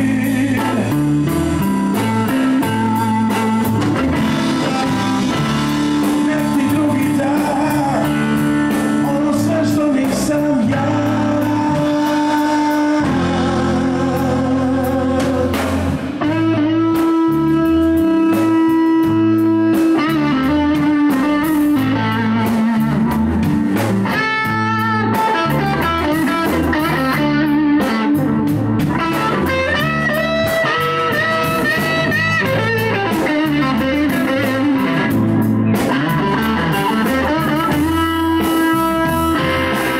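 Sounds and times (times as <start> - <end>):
bass guitar: 0.0 - 39.9
drum kit: 0.0 - 39.9
electric guitar bending notes: 0.0 - 39.9.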